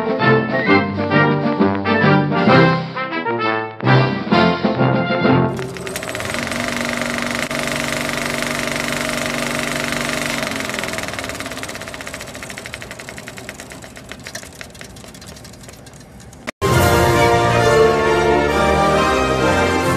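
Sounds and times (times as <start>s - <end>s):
film projector clatter: 5.5s - 16.6s
projector hum: 5.5s - 16.6s.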